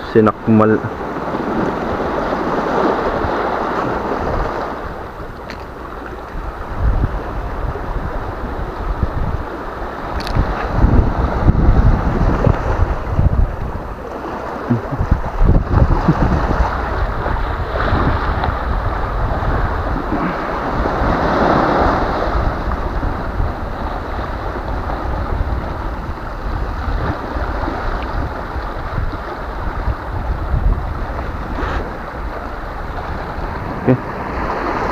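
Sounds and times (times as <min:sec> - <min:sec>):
surf washing on pebble shore: 0:00.0 - 0:34.9
wind buffeting microphone: 0:00.0 - 0:34.9.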